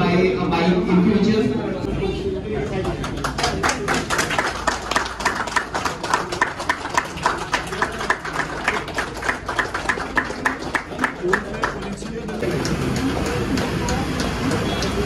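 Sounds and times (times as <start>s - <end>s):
people clapping: 2.7s - 15.0s.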